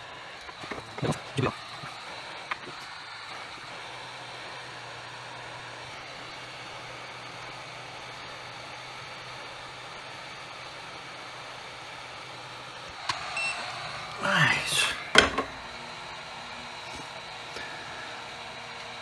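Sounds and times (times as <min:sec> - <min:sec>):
hot air gun blowing: 0:12.9 - 0:18.8.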